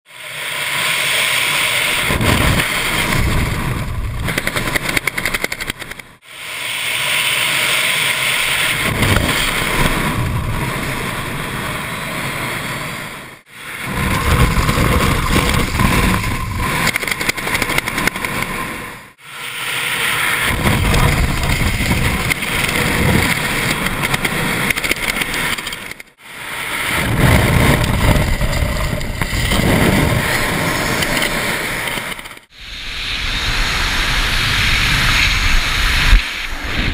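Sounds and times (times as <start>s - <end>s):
wind buffeting microphone: 2.0s - 5.6s, 8.7s - 11.6s, 13.8s - 18.6s, 20.4s - 25.8s, 26.8s - 36.9s.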